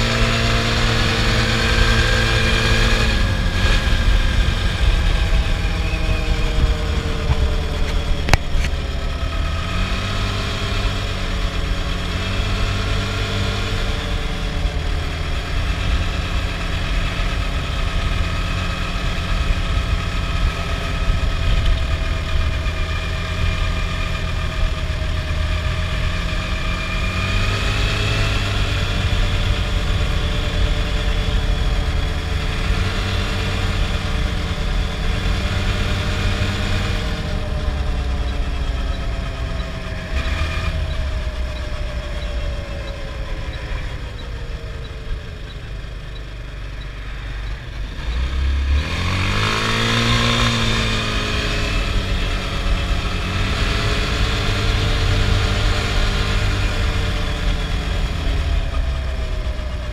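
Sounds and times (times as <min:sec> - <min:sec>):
quad engine running: 0:00.0 - 0:59.9.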